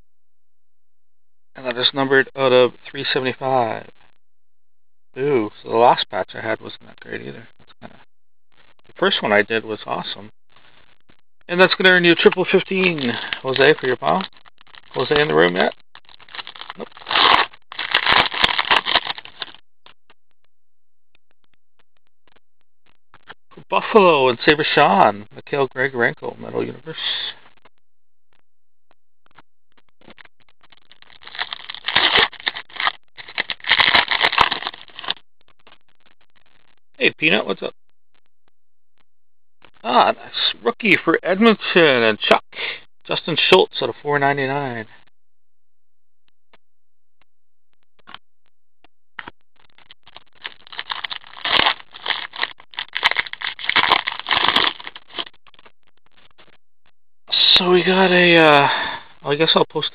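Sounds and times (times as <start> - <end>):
wrapper crinkling and tearing: 12.2 - 14.0, 16.0 - 19.6, 31.0 - 35.2, 49.7 - 55.4.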